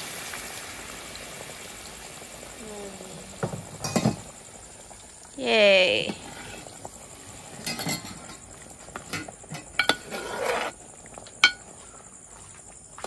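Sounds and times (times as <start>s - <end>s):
crickets chirping: 0.0s - 13.0s
ladle scraping through curry: 6.2s - 10.8s
ladle clinking against metal pot: 7.6s - 8.4s, 9.0s - 10.1s, 11.4s - 11.6s.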